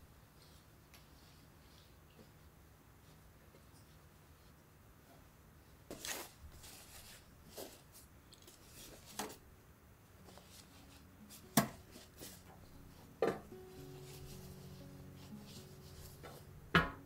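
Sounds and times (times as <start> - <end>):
cloth rustling: 5.9 - 9.4, 10.2 - 16.6.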